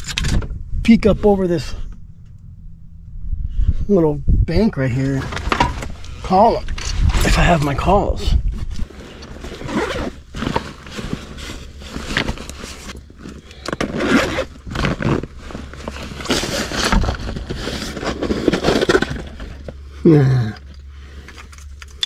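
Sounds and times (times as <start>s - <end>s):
backpack fabric rustling: 8.6s - 18.9s
man humming: 20.0s - 20.7s.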